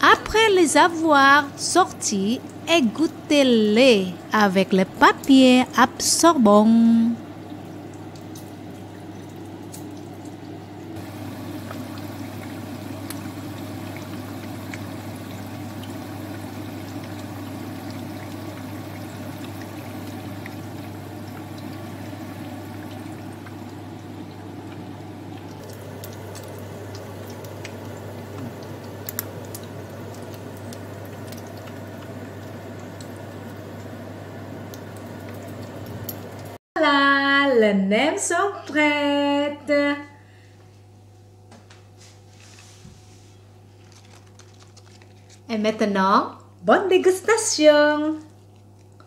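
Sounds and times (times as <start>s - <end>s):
small crackles of frying: 1.8s - 3.3s, 7.2s - 36.6s, 43.6s - 49.0s
spring rolls sizzling in oil: 11.0s - 36.4s.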